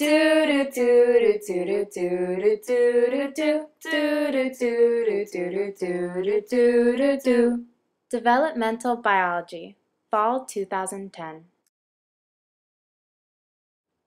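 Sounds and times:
woman singing unaccompanied: 0:00.0 - 0:07.7.

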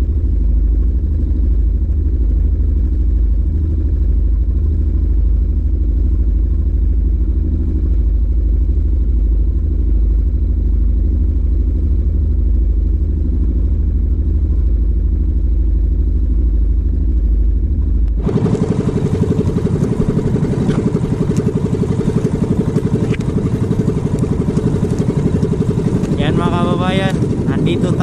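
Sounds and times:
boat engine running: 0:00.0 - 0:28.0.

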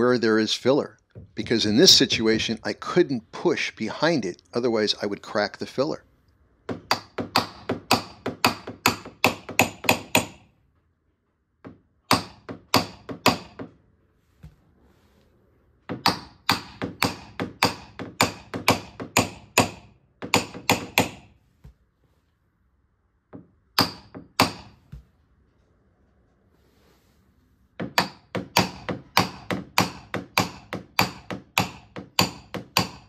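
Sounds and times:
hammer tapping on metal panel: 0:06.7 - 0:10.4, 0:11.6 - 0:13.8, 0:15.9 - 0:21.2, 0:27.8 - 0:33.0.

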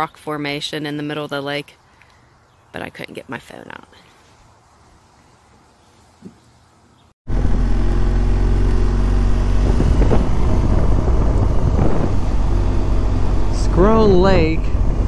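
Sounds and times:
motorcycle engine running: 0:07.3 - 0:15.0
wind rushing over microphone: 0:09.0 - 0:15.0.

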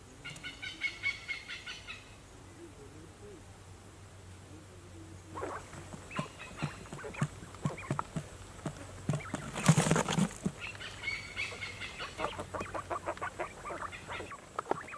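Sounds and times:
birds chirping and calling: 0:00.1 - 0:02.7, 0:05.2 - 0:08.1, 0:09.1 - 0:14.9
wing-flapping and scuffling: 0:05.4 - 0:11.0
quail pecking taps: 0:05.4 - 0:14.9.

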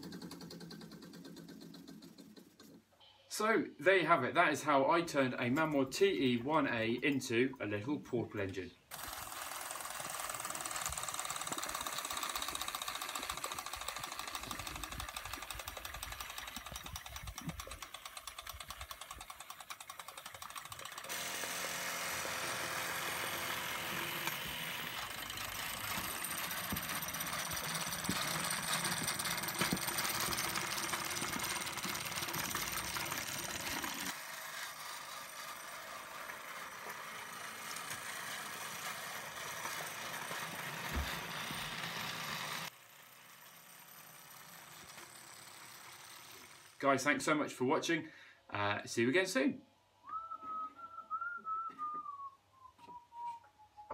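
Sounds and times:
small steam engines clattering: 0:08.9 - 0:21.3, 0:23.3 - 0:42.7.

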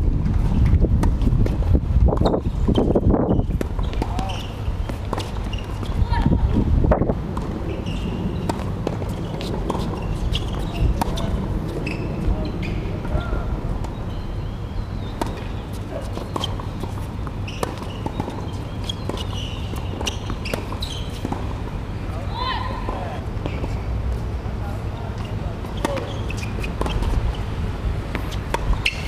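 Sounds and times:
distant voices: 0:07.2 - 0:29.0.

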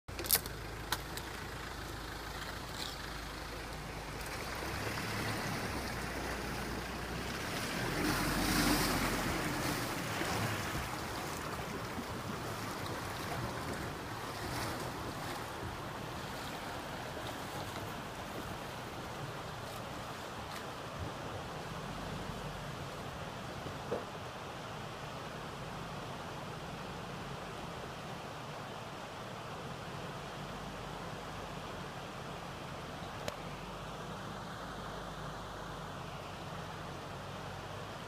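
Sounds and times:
pickup engine hum: 0:00.1 - 0:28.1
water splashing around wheels: 0:00.1 - 0:38.0.

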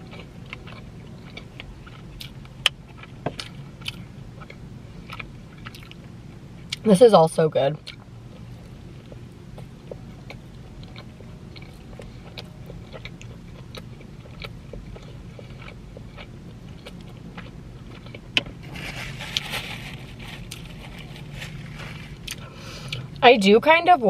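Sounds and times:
person chewing food: 0:00.0 - 0:06.8, 0:07.8 - 0:23.2
paper napkin rustle: 0:18.6 - 0:22.2.

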